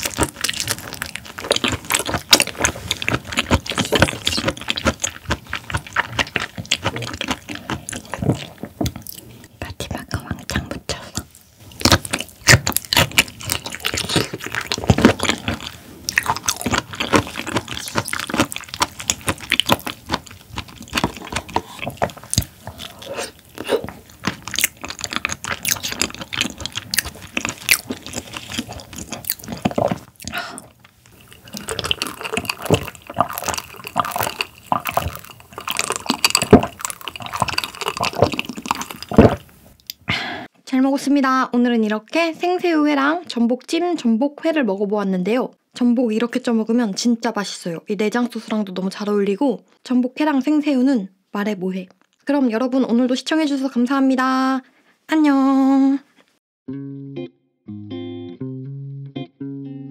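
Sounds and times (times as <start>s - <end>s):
wet chewing clicks and smacks: 0.0s - 9.3s, 11.1s - 40.0s
person gulping and swallowing: 0.0s - 9.5s, 10.5s - 40.4s.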